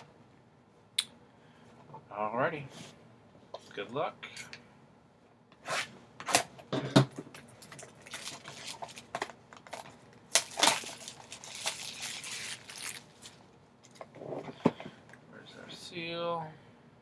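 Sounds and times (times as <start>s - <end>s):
plastic film snapping: 7.6s - 13.3s
plastic shrink-wrap tearing: 7.6s - 13.4s.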